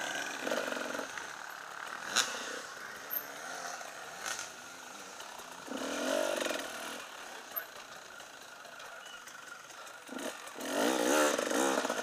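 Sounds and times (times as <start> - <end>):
motorcycle engine at low revs: 0.0 - 12.0.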